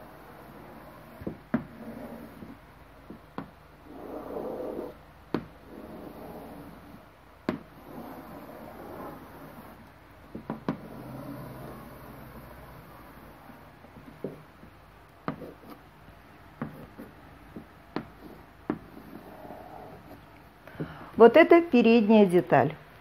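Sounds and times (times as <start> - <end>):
chalk scraping on blackboard: 3.9 - 5.0, 5.6 - 7.0, 7.7 - 9.8, 15.3 - 15.8, 16.6 - 20.3
chalk tapping on blackboard: 14.0 - 15.8, 16.6 - 19.4.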